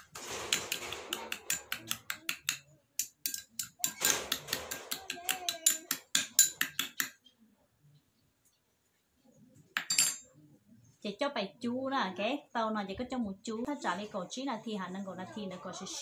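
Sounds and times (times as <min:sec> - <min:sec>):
spoon clinking against ceramic bowl: 0:01.4 - 0:07.0, 0:09.8 - 0:10.2.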